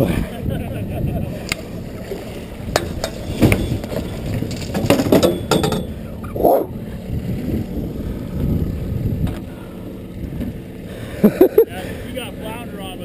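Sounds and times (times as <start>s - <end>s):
wind rumble on microphone: 0.0s - 10.6s
fishing gear knocking and rattling: 2.8s - 6.0s.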